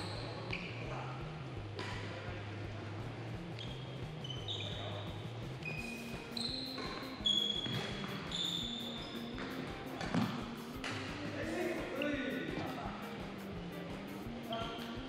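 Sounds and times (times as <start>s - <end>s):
court shoes squeaking: 0.0s - 2.2s, 3.3s - 15.0s
racket hitting shuttlecock: 9.3s - 11.1s.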